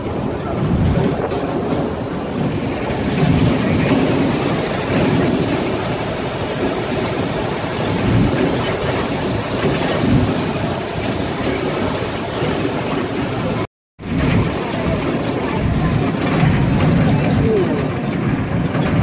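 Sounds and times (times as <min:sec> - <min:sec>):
jeep driving on dirt track: 0:07.9 - 0:19.0.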